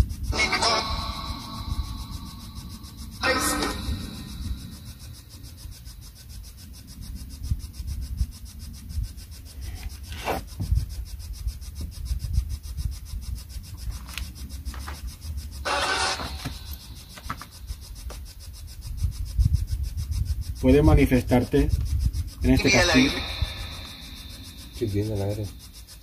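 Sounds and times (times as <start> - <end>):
short scrape: 9.8 - 10.6.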